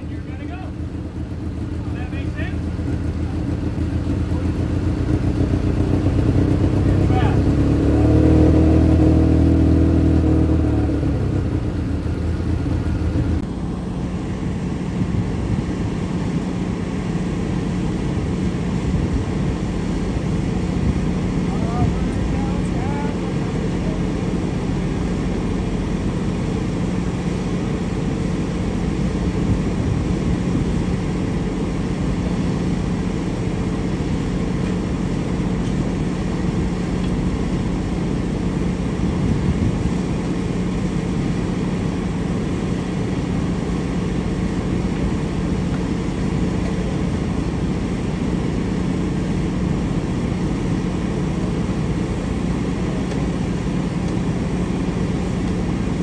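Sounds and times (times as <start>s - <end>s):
engine droning: 0.0s - 56.0s.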